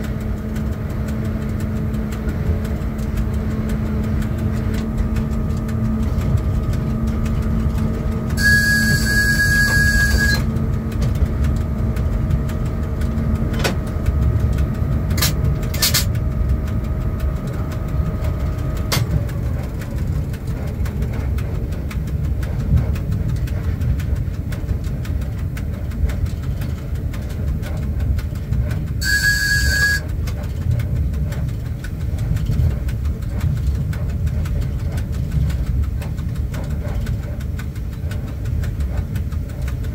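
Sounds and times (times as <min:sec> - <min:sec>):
electrical hum: 0:00.0 - 0:15.6, 0:29.0 - 0:30.1
train running gear rumbling on rails: 0:00.0 - 0:39.9
short high signal tone: 0:08.4 - 0:10.5, 0:29.0 - 0:30.1.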